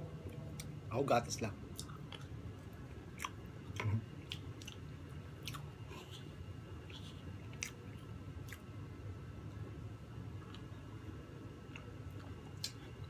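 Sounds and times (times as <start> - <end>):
people chewing cake: 1.7 - 8.8, 10.3 - 13.0.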